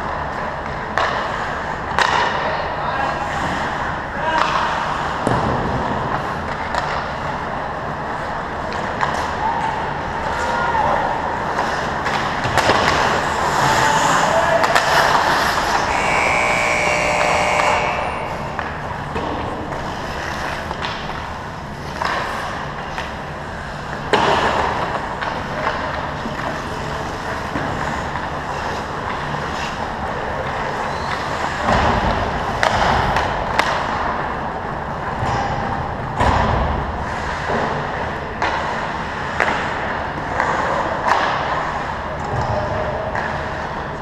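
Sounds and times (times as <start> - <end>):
sticks and puck clacking: 0.2 - 2.5, 4.2 - 34.3, 35.0 - 44.0
skate blades scraping ice: 11.4 - 31.6.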